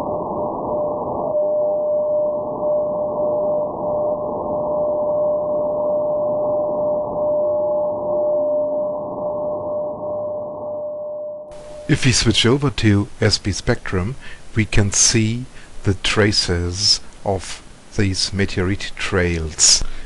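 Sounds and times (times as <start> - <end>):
receiver hiss: 0.0 - 10.7, 11.4 - 20.0
short radio tones: 11.5 - 12.3
steady radio beat tone: 11.5 - 13.1.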